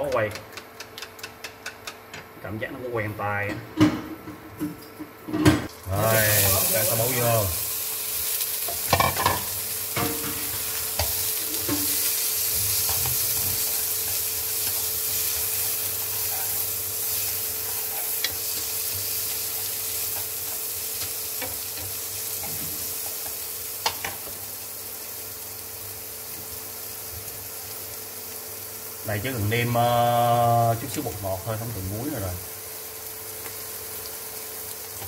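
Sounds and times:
utensil clicking against pan: 0.0s - 2.2s
food sizzling in oil: 5.7s - 35.0s.

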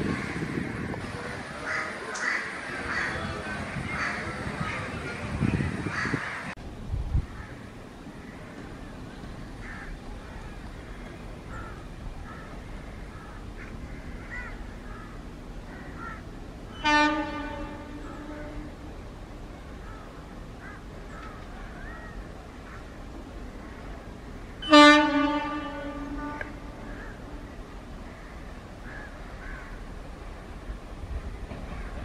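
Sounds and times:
birds calling faintly: 7.3s - 32.0s
locomotive horn blast: 16.7s - 19.2s, 24.6s - 27.6s.

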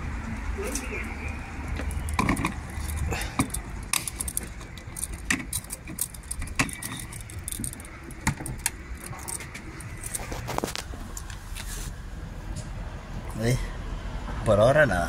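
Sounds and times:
keys jingling against filler cap: 1.8s - 10.8s.

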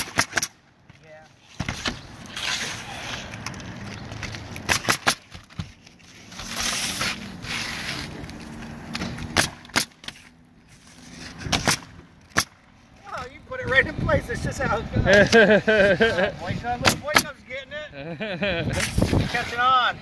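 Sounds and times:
nail gun firing: 0.0s - 0.6s, 4.7s - 5.3s
shingle scraping on roof: 1.4s - 11.9s, 18.7s - 20.0s.

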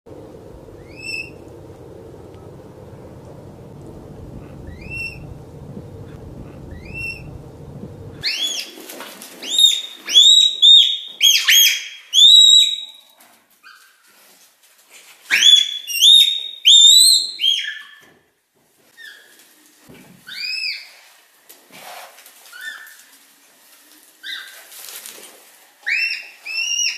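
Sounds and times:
steady background hiss: 0.1s - 8.6s.

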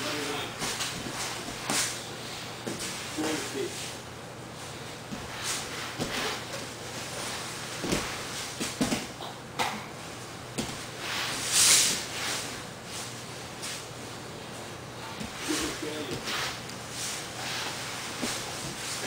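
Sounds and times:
bodies scuffing on foam mat: 4.6s - 9.1s, 15.1s - 19.0s.

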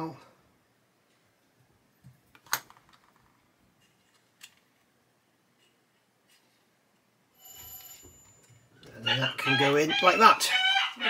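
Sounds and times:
faint plastic parts clicking: 1.0s - 7.1s.

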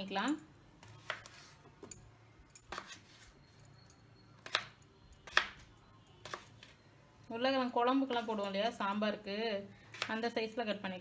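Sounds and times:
knife chopping on wooden board: 0.8s - 1.4s, 4.4s - 5.6s.

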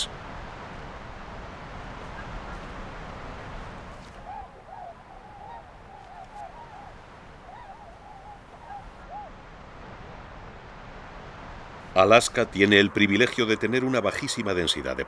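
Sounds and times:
gull calling: 4.0s - 9.4s.

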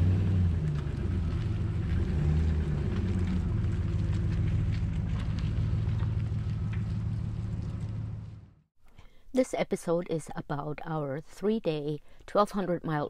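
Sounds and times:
road noise: 0.0s - 8.7s
vehicle engine drone: 0.0s - 8.7s.

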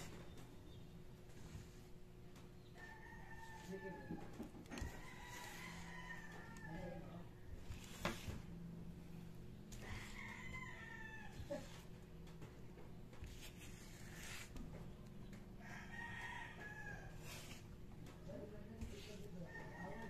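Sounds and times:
rooster crowing: 2.8s - 7.1s, 9.8s - 11.7s, 15.6s - 17.4s, 19.4s - 20.0s.

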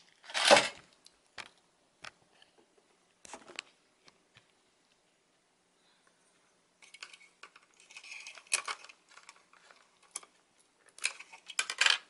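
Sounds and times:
plastic and metal parts clicking: 6.8s - 12.0s.

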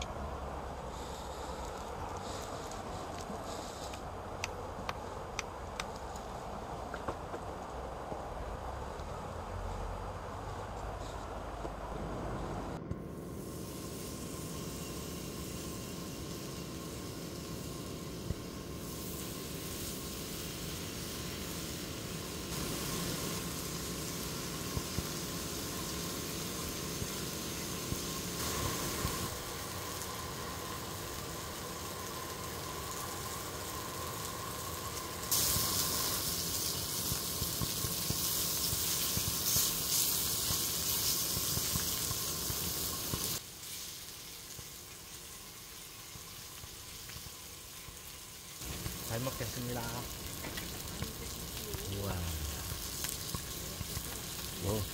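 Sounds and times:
food sizzling in a pan: 13.2s - 54.9s.

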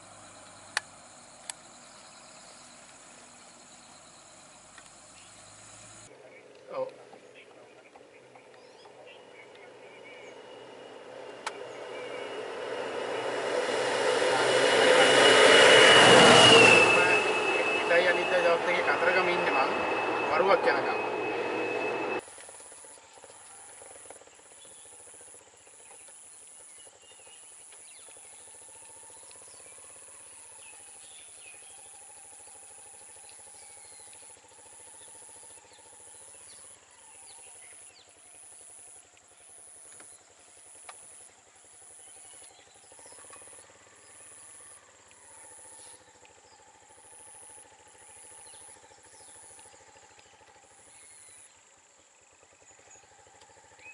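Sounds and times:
bird chirps: 0.0s - 12.8s
faint vehicle engine: 0.0s - 53.9s.

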